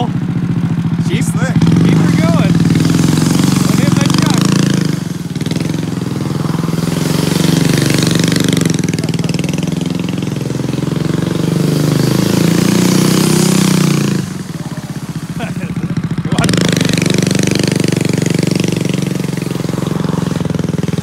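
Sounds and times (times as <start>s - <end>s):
small engine revving: 0.0s - 21.0s.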